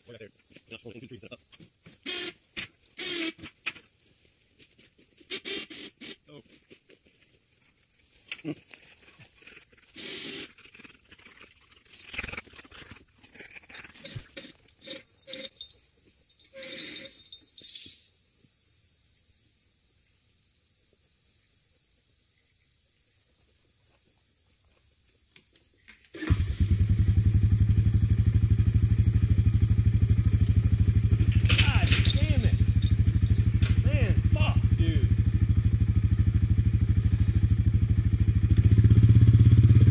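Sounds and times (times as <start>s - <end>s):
quad bike engine running: 26.2s - 39.9s.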